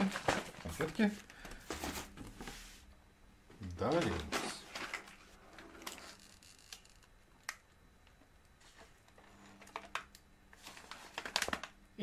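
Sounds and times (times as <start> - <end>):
light packaging rustling: 0.0 - 2.5, 8.6 - 11.8.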